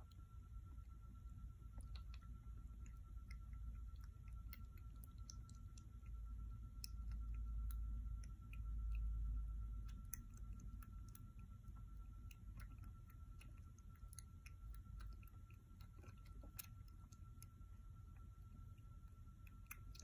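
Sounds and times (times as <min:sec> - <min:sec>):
kitten suckling wet clicks: 0:01.8 - 0:20.0.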